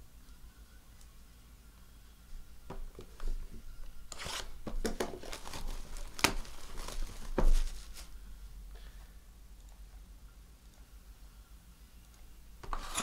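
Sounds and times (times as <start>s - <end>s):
cellophane tearing and crinkling: 4.1s - 8.1s.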